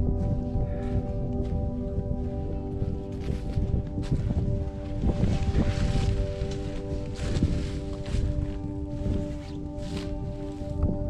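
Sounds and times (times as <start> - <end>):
sustained background music: 0.0 - 11.0
footsteps on dry leaves: 0.1 - 11.0.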